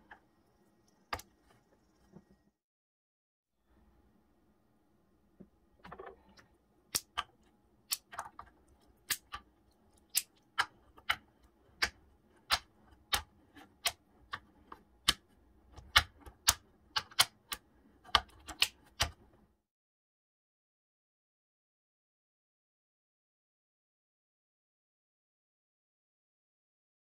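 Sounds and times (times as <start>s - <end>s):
plastic blocks snapping clicks: 6.9s - 7.3s, 7.9s - 11.2s, 11.8s - 15.2s, 15.8s - 19.2s.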